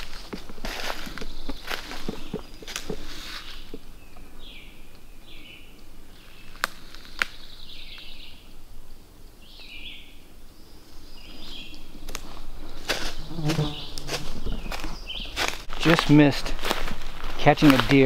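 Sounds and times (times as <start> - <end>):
footsteps crunching leaf litter: 0.0 - 3.8, 6.2 - 8.0, 11.2 - 18.0
hush of the woods: 0.0 - 18.0
songbird singing: 0.0 - 18.0.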